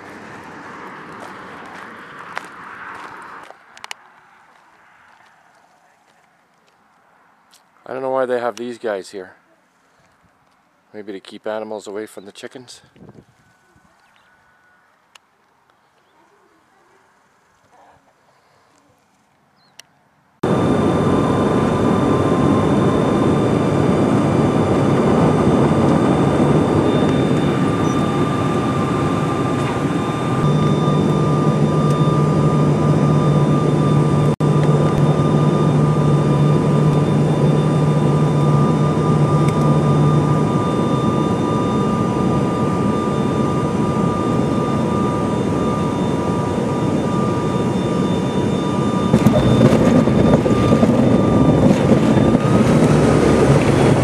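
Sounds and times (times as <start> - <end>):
airliner cabin engine noise: 0.0 - 6.1, 20.4 - 54.0
low hum: 20.4 - 54.0
steady high tones: 20.4 - 54.0.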